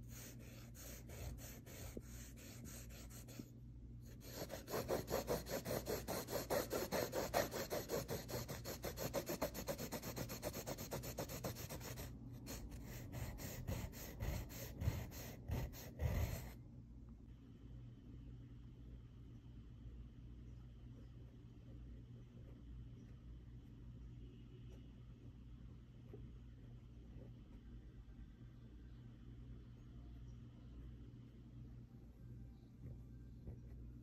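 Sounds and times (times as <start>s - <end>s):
pencil scratching on fabric: 0.0s - 3.5s, 4.1s - 16.6s.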